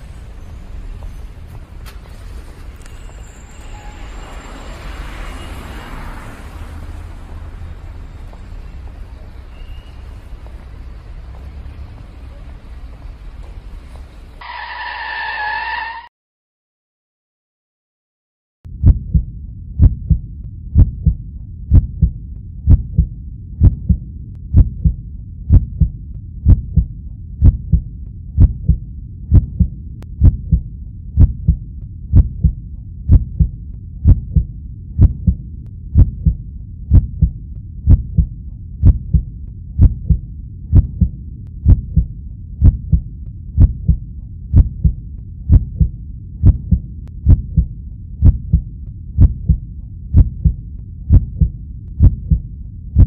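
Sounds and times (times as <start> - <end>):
heartbeat thumps: 18.7 - 53.0.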